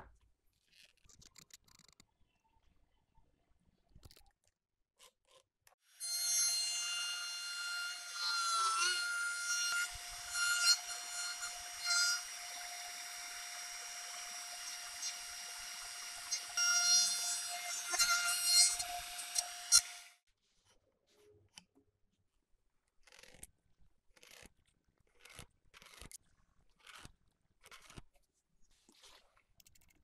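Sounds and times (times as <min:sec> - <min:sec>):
router cutting wood: 0:05.9 - 0:20.2.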